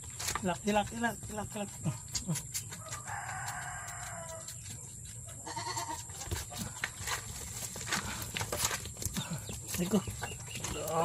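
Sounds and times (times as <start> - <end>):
goat kid bleating: 5.3 - 6.3.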